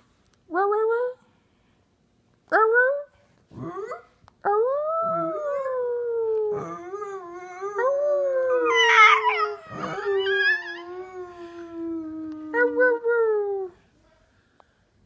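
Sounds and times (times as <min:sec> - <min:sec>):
small dog howling: 0:05.0 - 0:13.0
rough high-pitched dog cry: 0:08.5 - 0:10.9.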